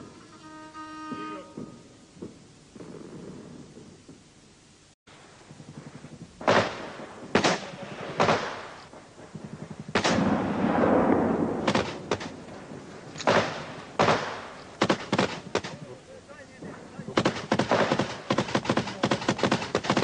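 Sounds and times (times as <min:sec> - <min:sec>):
echoing gunshots: 0:06.4 - 0:15.8, 0:17.1 - 0:20.0.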